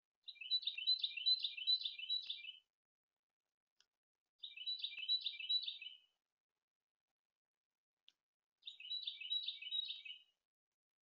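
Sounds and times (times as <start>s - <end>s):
songbird chirping: 0.2s - 2.8s, 3.8s - 6.2s, 8.1s - 10.5s.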